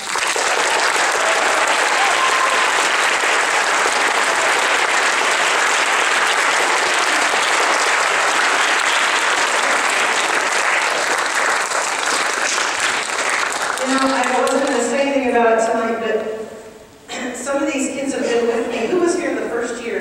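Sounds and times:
large crowd applauding: 0.0s - 14.8s.

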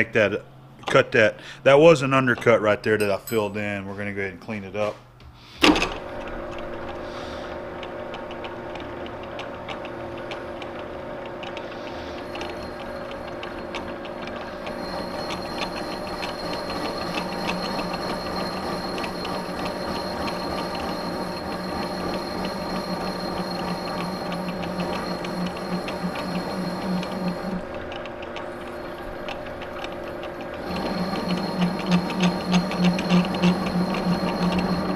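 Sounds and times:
lathe gear-drive hum: 5.7s - 34.9s
rapid light ticking of cutting tool: 7.1s - 34.9s
high steady whine: 12.0s - 34.9s.

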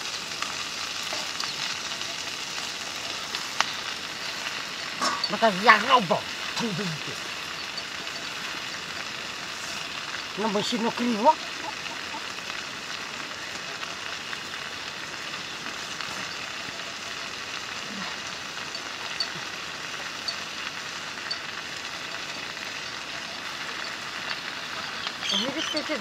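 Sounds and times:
leaves sizzling in a pot: 0.0s - 26.0s.

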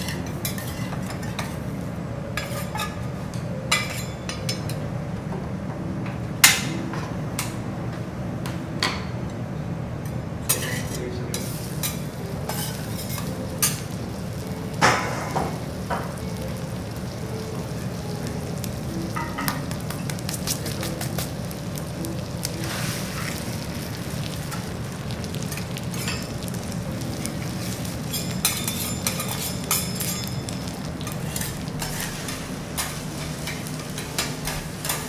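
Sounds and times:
rice sizzling on a griddle: 10.5s - 35.0s.

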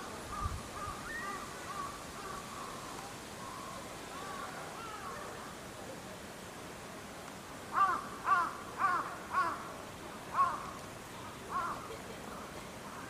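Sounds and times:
crow cawing: 7.7s - 9.7s, 10.3s - 10.8s, 11.5s - 11.8s.

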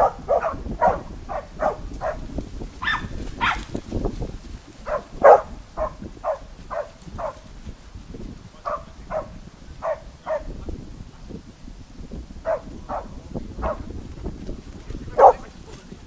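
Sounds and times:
dog barking: 0.0s - 3.6s, 4.8s - 7.4s, 8.6s - 10.6s, 12.4s - 13.9s, 15.1s - 15.5s.

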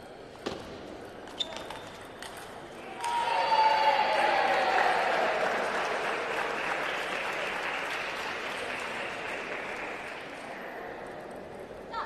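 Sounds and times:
spectators applauding: 3.0s - 10.5s.

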